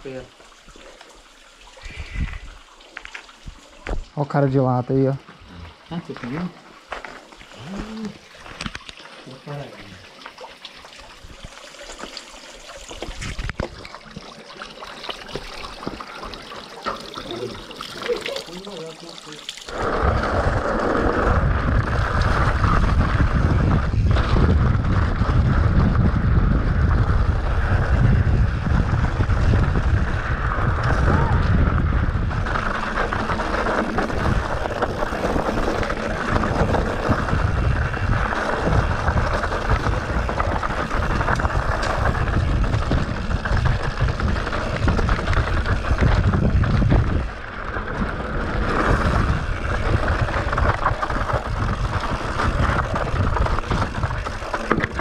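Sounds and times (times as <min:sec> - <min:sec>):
mountain bike clattering on trail: 0:19.5 - 0:55.0
bike knocking on rough ground: 0:19.7 - 0:55.0
wind rushing over microphone: 0:19.7 - 0:55.0.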